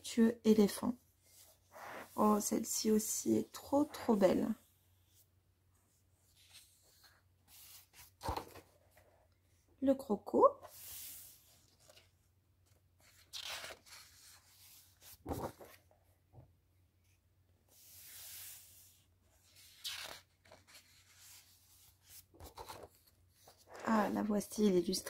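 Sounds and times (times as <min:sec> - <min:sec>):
paper pages rustling: 0:06.3 - 0:09.1, 0:10.8 - 0:16.0, 0:19.5 - 0:24.2.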